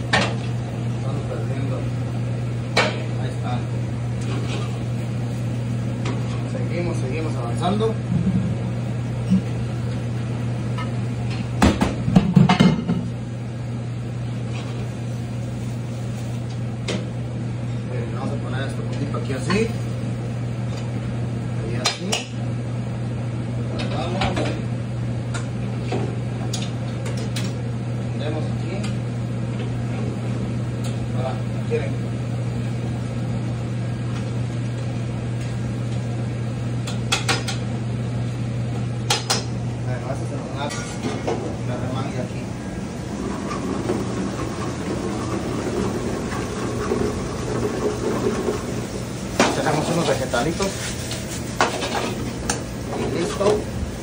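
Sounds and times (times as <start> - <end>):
exhaust fans humming: 0.0 - 54.0
pans and utensils clattering: 51.6 - 53.4.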